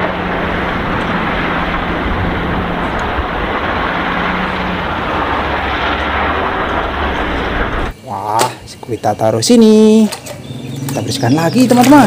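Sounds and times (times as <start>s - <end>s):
truck diesel engine drone: 0.0s - 8.3s
tyre and road noise: 0.0s - 12.0s.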